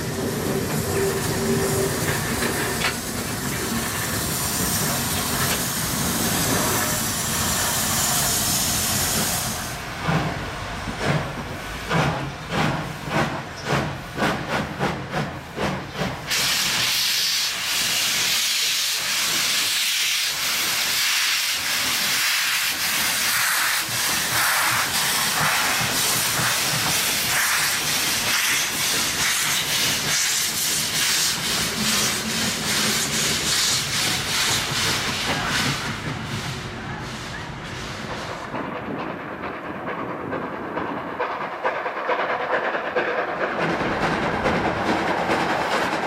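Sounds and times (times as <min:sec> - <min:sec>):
loud hiss of escaping steam: 0:00.0 - 0:10.2, 0:15.6 - 0:38.5
steam hissing: 0:00.0 - 0:38.5.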